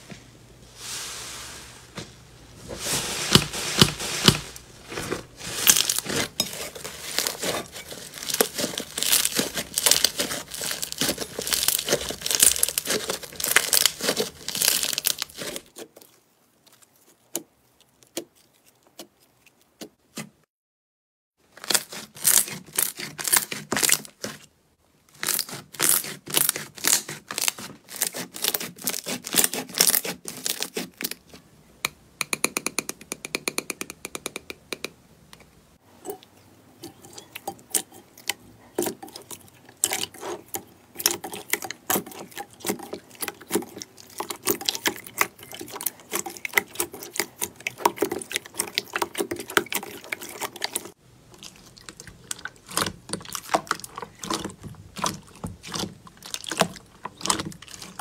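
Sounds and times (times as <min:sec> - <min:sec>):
slime squished with sticky crackles: 0:05.5 - 0:19.9, 0:38.8 - 0:58.0.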